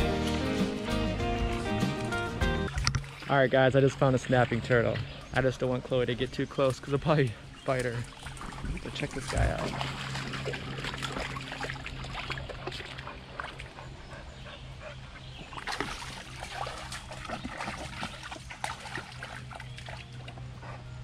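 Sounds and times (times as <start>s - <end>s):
water splashing in creek: 2.7s - 14.0s, 15.2s - 20.6s
steady low hum: 2.8s - 21.0s.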